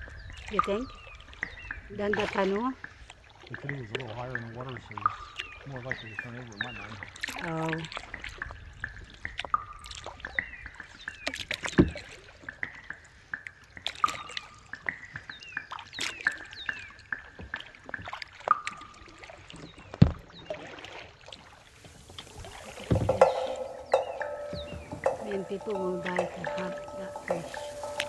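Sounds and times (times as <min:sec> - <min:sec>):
paddle dipping and splashing: 0:00.0 - 0:28.0
kayak thumps: 0:19.9 - 0:20.7, 0:21.7 - 0:28.0.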